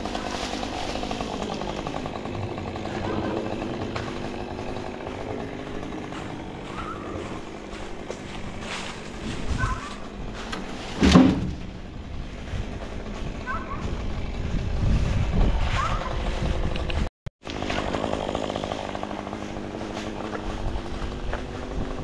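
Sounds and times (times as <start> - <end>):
chainsaw running: 0.0 - 22.0
loud thump: 11.0 - 11.6.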